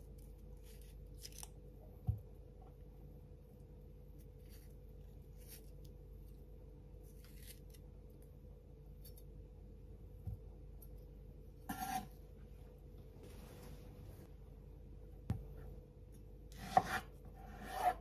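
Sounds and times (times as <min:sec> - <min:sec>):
knife cutting and scraping: 0:11.7 - 0:12.2, 0:16.5 - 0:18.0.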